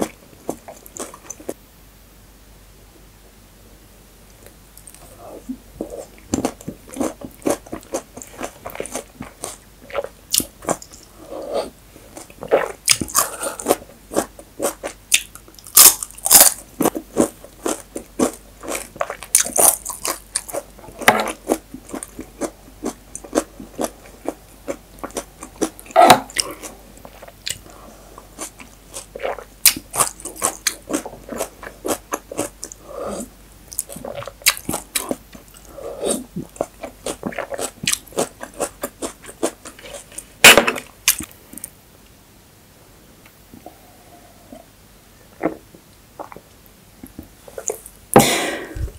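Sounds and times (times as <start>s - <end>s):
chewing and crunching: 5.8s - 11.1s, 12.1s - 27.6s, 28.2s - 32.8s, 36.4s - 40.3s.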